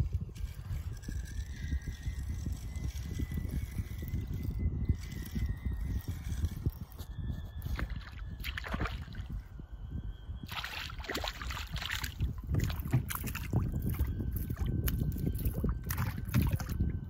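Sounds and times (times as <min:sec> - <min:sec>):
low steady rumble: 0:00.0 - 0:17.0
water lapping against kayak hull: 0:10.5 - 0:16.8.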